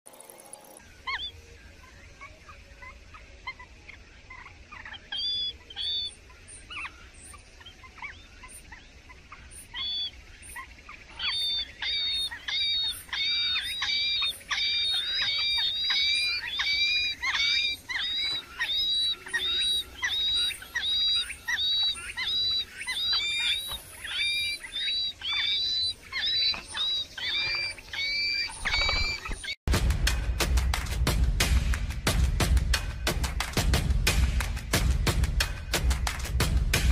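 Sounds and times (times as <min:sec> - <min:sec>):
nestlings begging chirps: 0:00.7 - 0:29.6.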